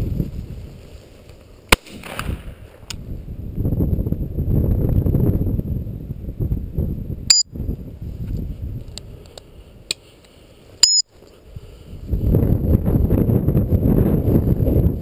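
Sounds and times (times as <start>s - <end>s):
wind rumble on microphone: 0.0s - 1.4s, 2.0s - 9.9s, 11.3s - 15.0s
rustling in dry grass: 0.0s - 3.1s, 7.8s - 12.6s
faint clicks: 8.3s - 11.4s
short high beeps: 10.8s - 11.1s.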